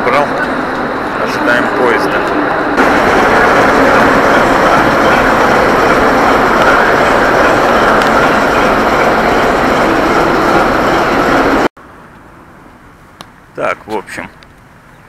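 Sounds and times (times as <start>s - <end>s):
diesel locomotive engine running: 0.0s - 11.7s.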